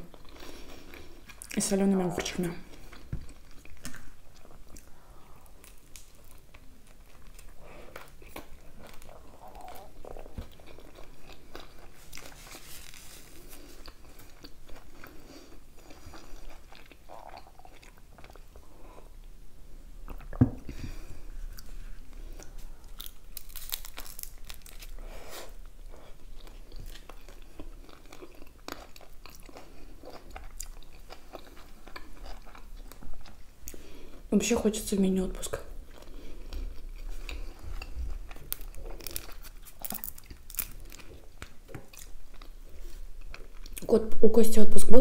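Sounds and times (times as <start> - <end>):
chewing and biting food: 5.5 - 19.1, 25.8 - 33.8, 35.8 - 43.8.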